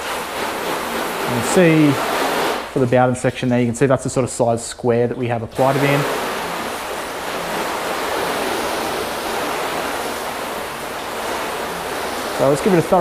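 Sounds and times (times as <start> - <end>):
hose water spraying on car: 0.0 - 2.9, 5.6 - 13.0.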